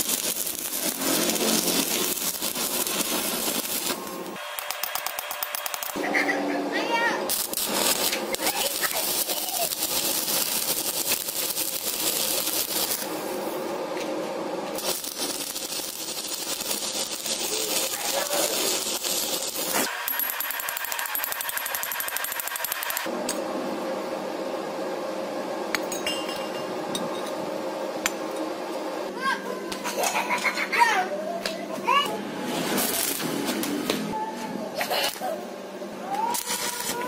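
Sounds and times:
welding arc crackling: 0.0 - 6.3, 7.3 - 13.6, 14.8 - 23.1, 32.7 - 33.7, 36.1 - 37.0.

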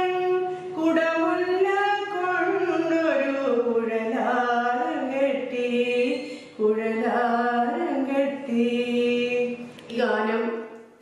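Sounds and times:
woman singing: 0.0 - 10.8.

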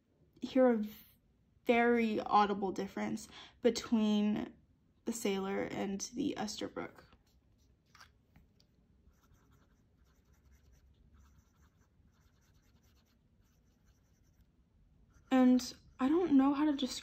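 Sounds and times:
fountain pen nib scratching paper: 9.1 - 14.5.

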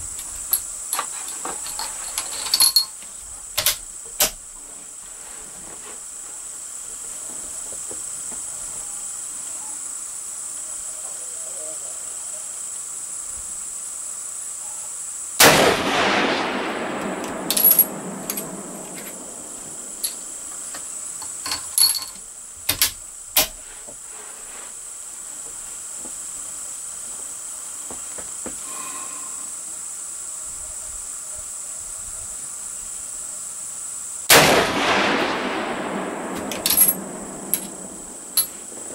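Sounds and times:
high whine of insects: 0.0 - 38.9
rifle shots with echo: 15.4 - 20.5, 34.3 - 38.4
metallic clicks of rifle action: 17.0 - 19.2, 36.4 - 37.0.

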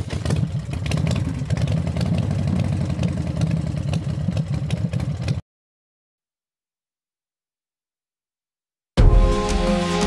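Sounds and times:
engine running with fast pulse: 0.0 - 5.4.

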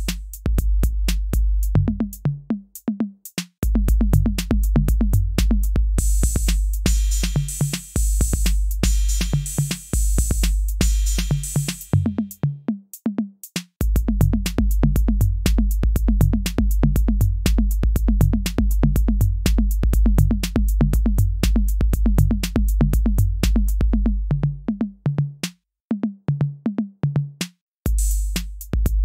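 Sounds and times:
deep bass: 0.0 - 2.5, 3.6 - 7.4, 13.8 - 25.4, 27.9 - 29.0
drum-machine beat: 0.0 - 29.0.

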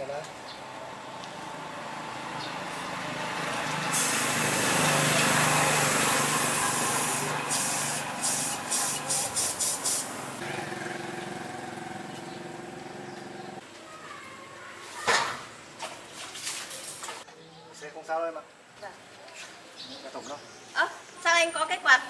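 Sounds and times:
small engine running: 1.6 - 9.4, 10.4 - 13.6
loud hissing pulses: 3.7 - 11.0.

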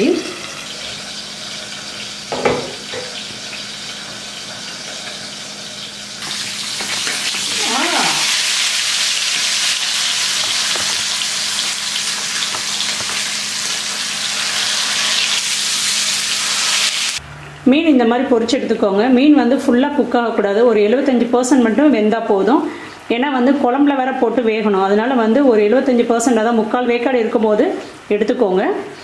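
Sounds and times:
fish sizzling in hot oil: 0.0 - 17.2.

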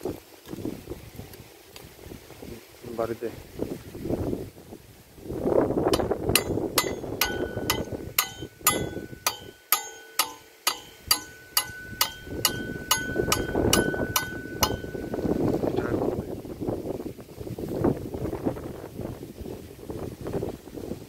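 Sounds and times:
hammer striking metal frame: 5.9 - 15.4.

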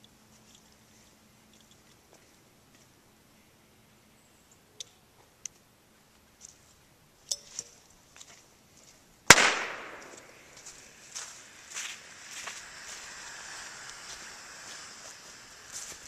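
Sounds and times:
smoke grenade pop: 9.3 - 10.3
hissing rush of smoke: 10.2 - 16.0.

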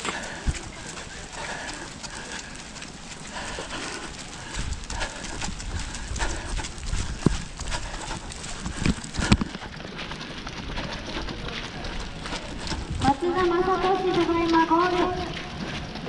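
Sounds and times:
footfalls on wet running track: 0.0 - 16.0
wind buffeting microphone: 0.0 - 16.0.

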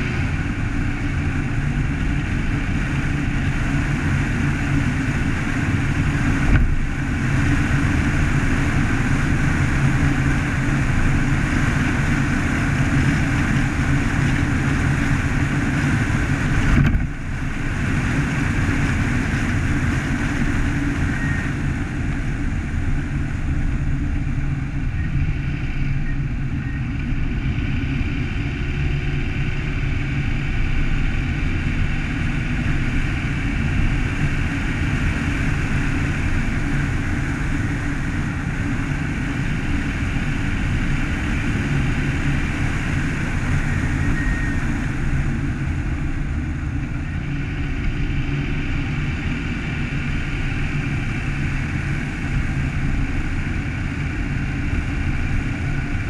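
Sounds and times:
car engine and tyre rumble: 0.0 - 56.0.

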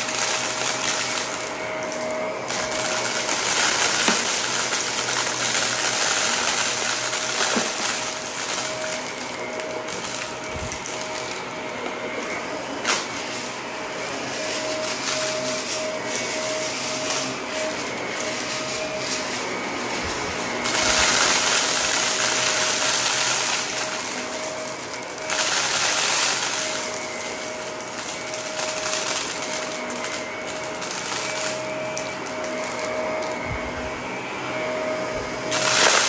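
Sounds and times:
vacuum cleaner motor whine: 0.0 - 36.0
brushroll crunching debris: 12.1 - 33.9.

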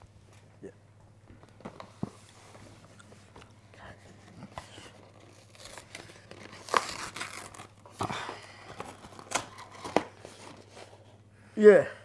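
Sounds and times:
cardboard rustling: 1.5 - 11.2
cardboard box tearing: 4.9 - 10.6.

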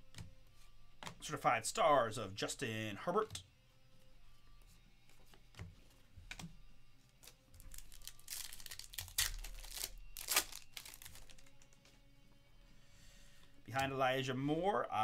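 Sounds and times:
foil wrapper crinkling and tearing: 7.2 - 11.8.

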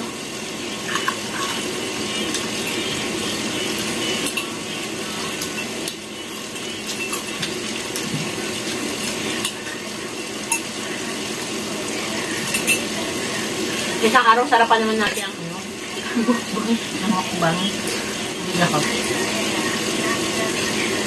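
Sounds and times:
cutlery clicking on plates: 12.5 - 12.9.

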